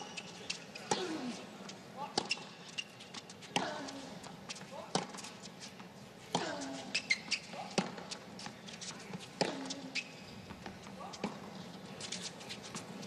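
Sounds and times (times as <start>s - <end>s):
sneaker squeaks: 0.0s - 5.8s, 6.4s - 13.0s
racket hitting tennis ball: 4.8s - 5.4s, 6.3s - 11.6s.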